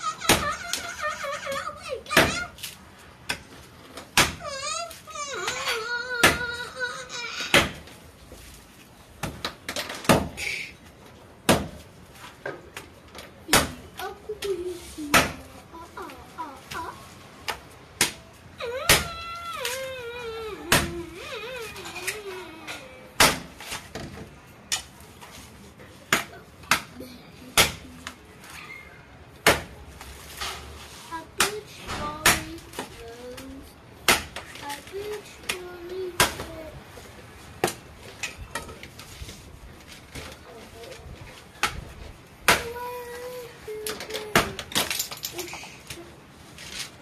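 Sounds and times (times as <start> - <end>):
blade chopping coconut husk: 11.4 - 11.8, 23.2 - 23.8, 29.4 - 29.8.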